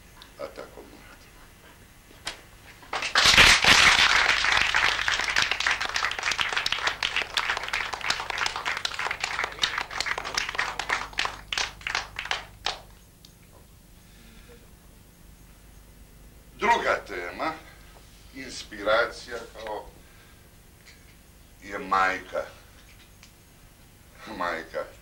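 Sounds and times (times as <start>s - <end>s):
audience applauding: 2.9s - 13.0s.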